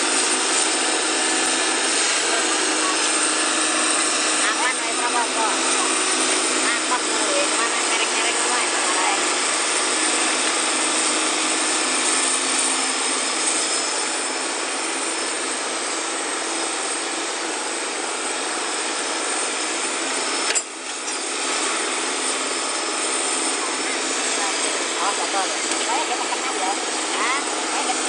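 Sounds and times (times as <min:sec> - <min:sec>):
excavator running under load: 0:00.0 - 0:28.0.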